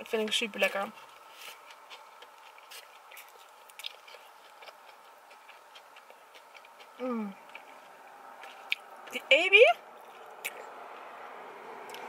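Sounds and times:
chewing mouth clicks and smacks: 1.0s - 9.2s, 10.0s - 10.7s.

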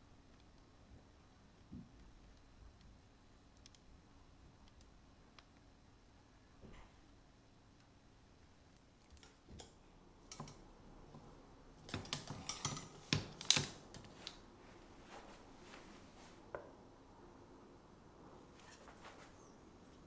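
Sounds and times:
metal rack and utensils clicking: 9.2s - 10.6s, 11.8s - 14.1s.

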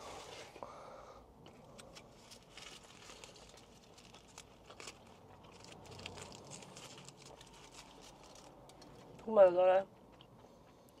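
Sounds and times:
food wrapper crinkling: 1.5s - 9.2s.

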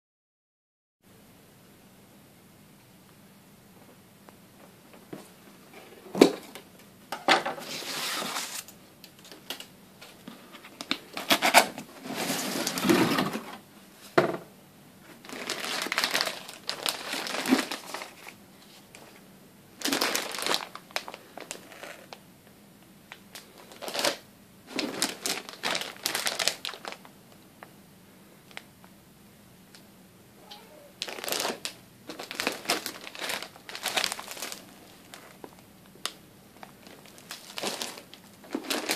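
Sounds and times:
cardboard rustling: 7.6s - 8.7s, 10.5s - 13.6s
plastic wrapping crinkling: 15.2s - 19.1s, 19.8s - 22.2s, 23.3s - 27.1s, 30.8s - 38.9s.

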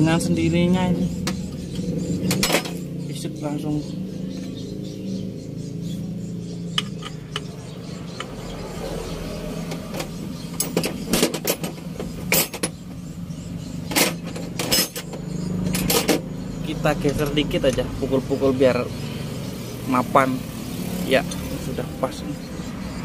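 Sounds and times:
steady low hum: 0.0s - 9.2s
metal tools clinking: 9.9s - 12.9s, 13.8s - 16.3s.

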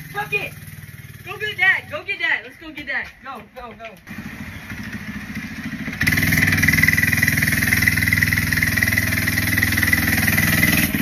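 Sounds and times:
small engine puttering: 4.1s - 11.0s.

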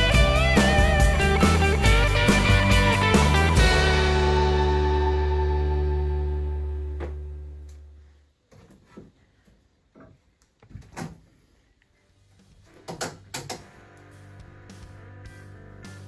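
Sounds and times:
guitar music: 0.0s - 7.7s.

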